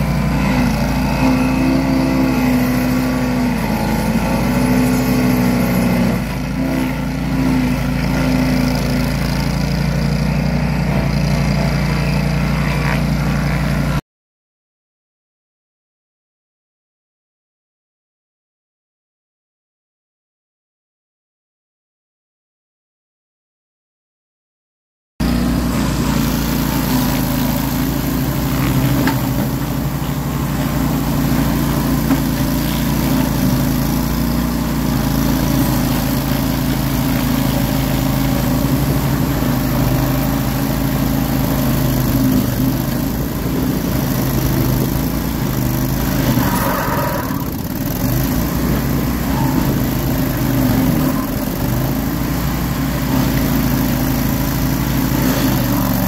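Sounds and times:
cutter wheel grinding roots: 0.0 - 14.0, 25.2 - 56.0
stump grinder engine running: 0.0 - 14.0, 25.2 - 56.0.

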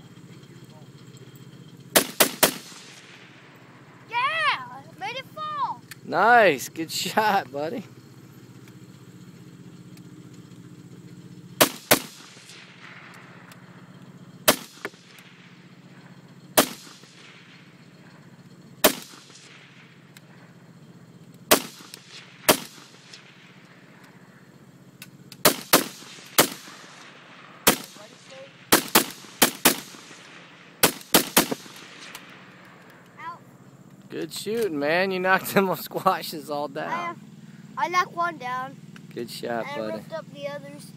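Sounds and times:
rifle shots echoing: 1.8 - 3.9, 11.6 - 13.7, 14.4 - 15.6, 16.6 - 17.8, 18.8 - 20.5, 21.4 - 24.0, 25.4 - 32.9.

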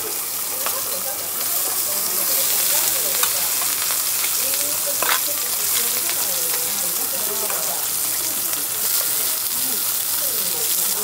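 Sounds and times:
food sizzling on griddle: 0.0 - 11.0
metal spatulas clicking: 5.0 - 5.9.

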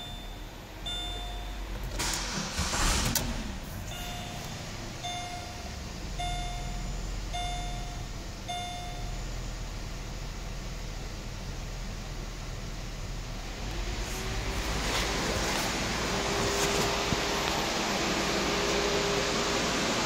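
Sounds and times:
dashboard warning chime: 0.0 - 2.3, 3.8 - 9.7
car engine starting and idling: 0.0 - 20.0.

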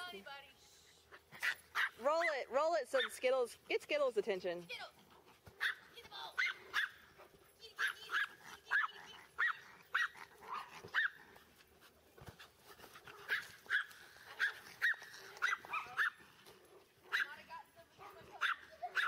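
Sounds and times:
dog yapping: 1.4 - 2.3, 5.6 - 7.0, 7.7 - 11.4, 13.2 - 16.3, 18.0 - 19.0.

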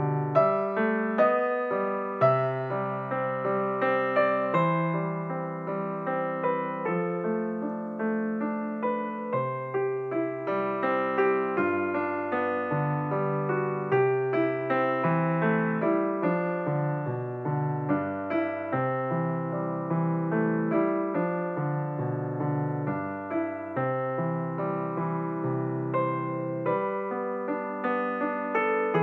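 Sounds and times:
calm piano music: 0.0 - 29.0.

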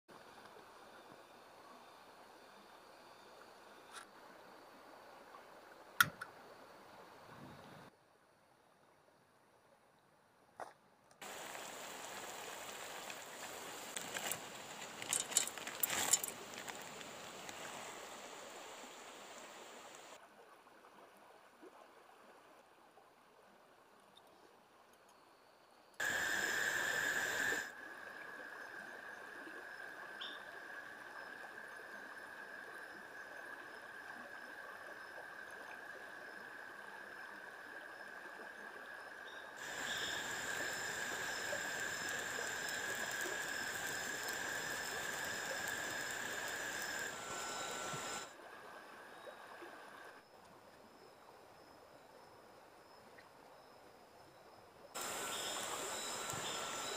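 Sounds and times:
river flowing: 11.2 - 20.4, 26.0 - 50.2, 55.0 - 56.9
insects singing high note: 39.6 - 48.3.

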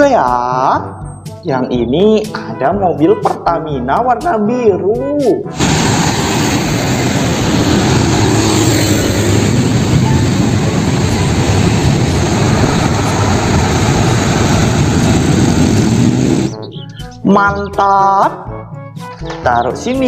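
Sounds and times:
loud engine drone: 5.6 - 16.7.

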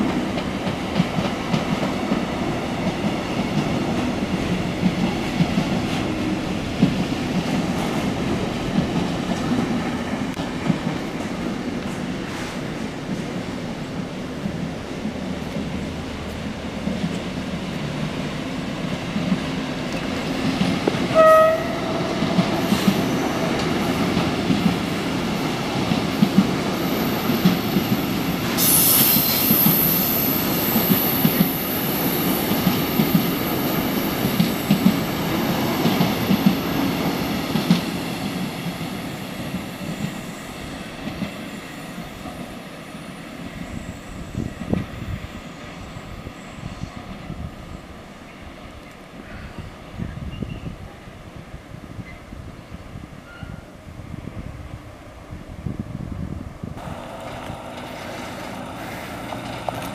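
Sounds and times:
freight train rumble: 0.0 - 59.9
train horn toot: 21.1 - 22.4
wheels clattering over rails: 56.8 - 59.9.

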